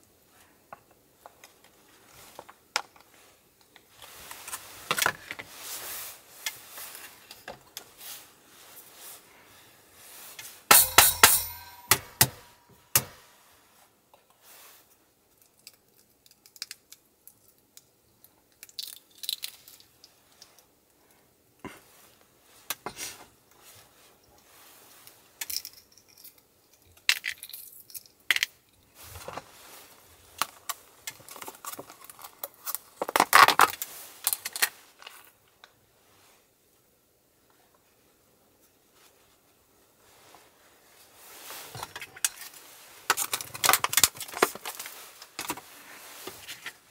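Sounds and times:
egg shell cracking and peeling: 15.3s - 20.5s, 25.4s - 28.5s.

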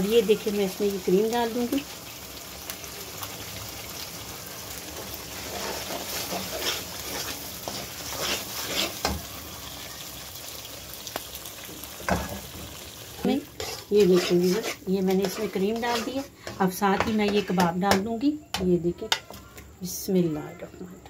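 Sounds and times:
masala sizzling in oil: 0.0s - 20.6s
metal spoon scraping pan: 5.4s - 9.2s, 13.2s - 18.0s.

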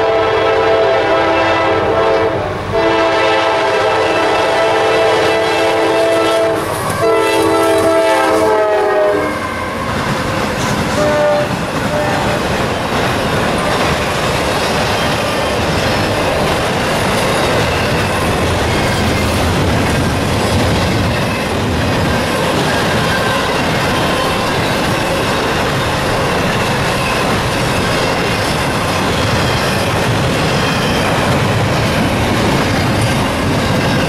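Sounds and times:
locomotive air horn: 0.0s - 10.0s, 10.9s - 12.5s
train wheels rumbling on rails: 0.0s - 34.0s.

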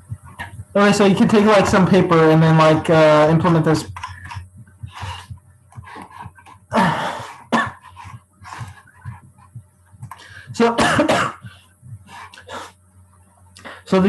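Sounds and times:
person coughing: 6.7s - 9.2s, 10.6s - 11.6s.

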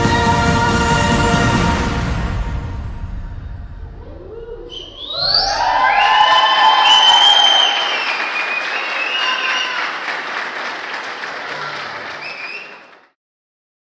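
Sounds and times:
cheering shouts: 5.0s - 13.0s
crowd applauding: 5.3s - 13.2s.

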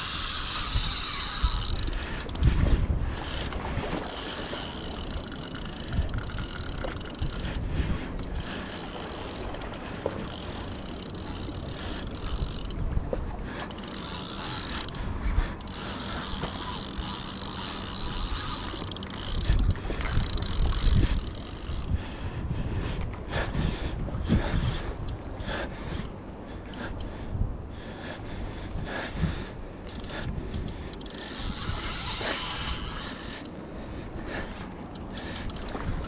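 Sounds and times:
fishing reel whirring: 0.0s - 12.8s, 13.6s - 22.2s, 29.8s - 33.6s, 34.8s - 36.0s
wind rumble on microphone: 0.0s - 36.0s.

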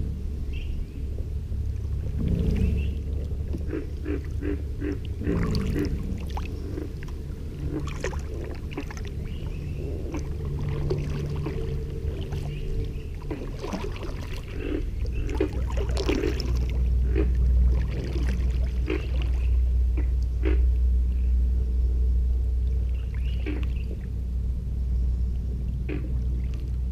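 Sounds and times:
deep low rumble: 0.0s - 26.9s
kayak paddle splashing in water: 2.2s - 19.6s.

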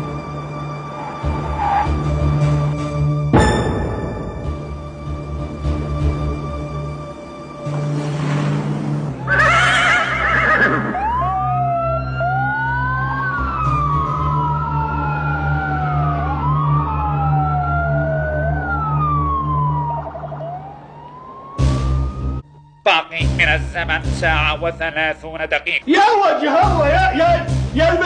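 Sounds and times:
police sirens wailing: 0.0s - 3.3s, 9.1s - 28.0s.

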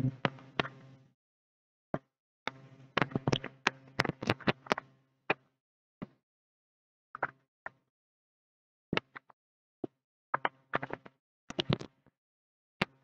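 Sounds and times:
faint low hum: 0.0s - 1.1s.

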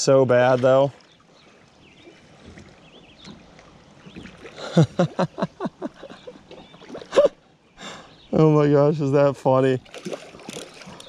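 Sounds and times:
person laughing: 4.6s - 6.4s, 7.1s - 7.4s.

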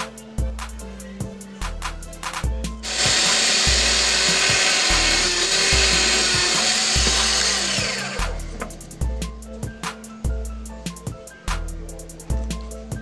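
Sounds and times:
drill press drilling plywood: 2.8s - 8.8s.

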